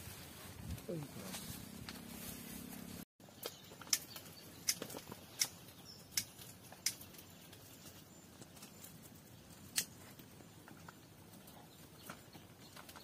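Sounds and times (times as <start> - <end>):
sharp clicks: 3.8 - 7.2.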